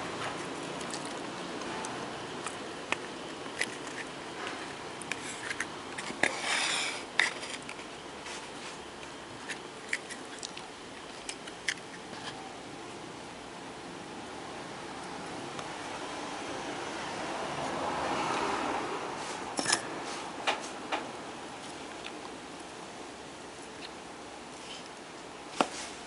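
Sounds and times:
steady background hiss: 0:00.0 - 0:26.0
short scrape: 0:06.2 - 0:07.6.

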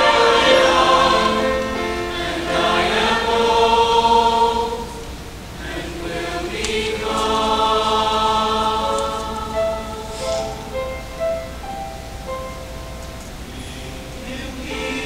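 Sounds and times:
choir singing sustained chords: 0:00.0 - 0:15.0.

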